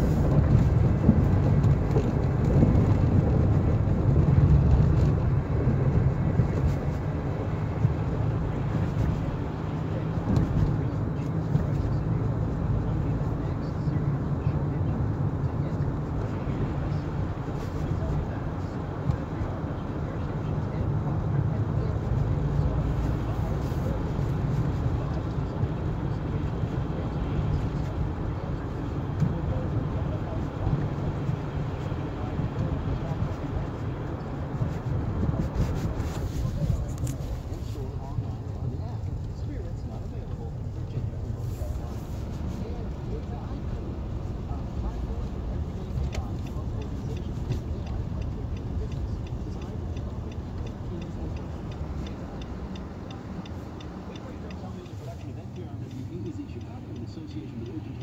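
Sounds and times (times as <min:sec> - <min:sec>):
car cabin road rumble: 0:00.0 - 0:58.0
turn signal clicking: 0:42.9 - 0:58.0.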